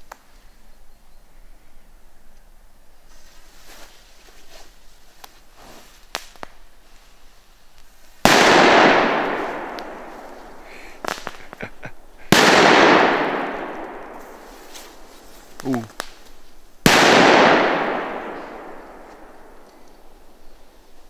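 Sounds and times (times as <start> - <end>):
firework pop and hiss: 5.2 - 6.6, 10.6 - 13.0, 13.8 - 17.2.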